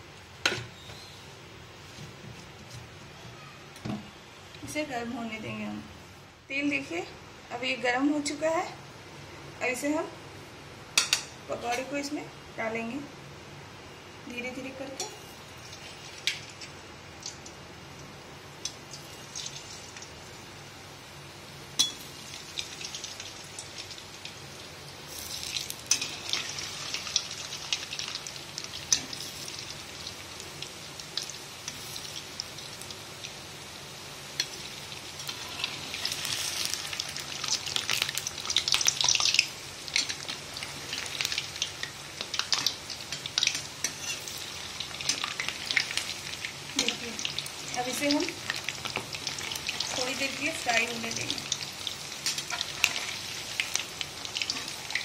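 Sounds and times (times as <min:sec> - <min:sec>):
food sizzling in hot oil: 0:14.5 - 0:55.0.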